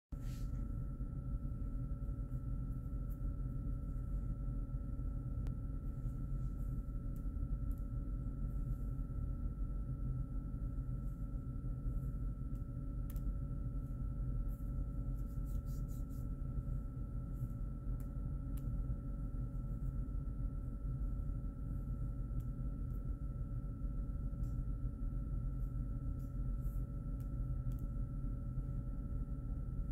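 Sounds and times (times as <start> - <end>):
low room hum with thin tones: 0.1 - 29.9.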